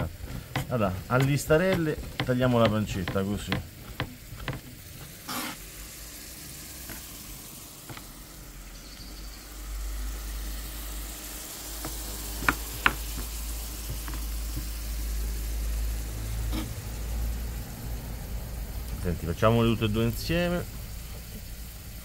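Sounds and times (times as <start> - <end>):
onion sizzling in oil: 0.0 - 22.0
knife knocking on cutting board: 0.6 - 4.7.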